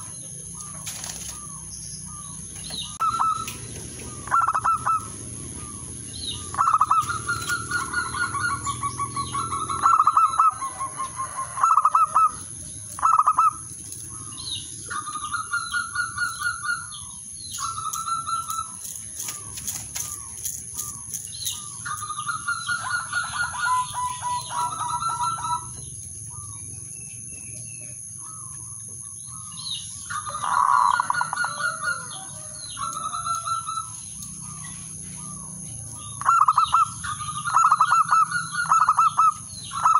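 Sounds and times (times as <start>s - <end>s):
dove cooing: 0.0s - 26.6s, 28.2s - 39.9s
wings fluttering: 0.6s - 1.7s, 6.6s - 8.8s, 17.6s - 25.7s.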